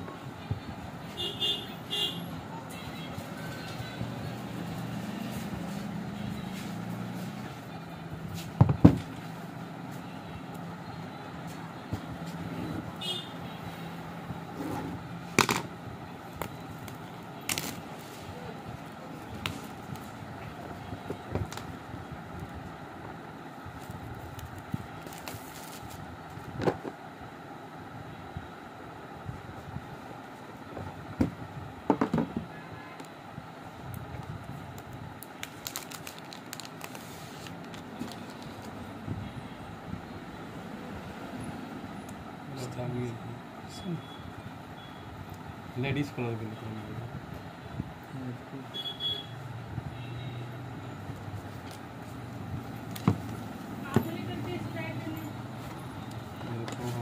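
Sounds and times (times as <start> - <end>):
plastic wrap crackling: 16.4 - 18.0, 34.7 - 38.8
box knocking on wooden table: 31.9 - 32.4.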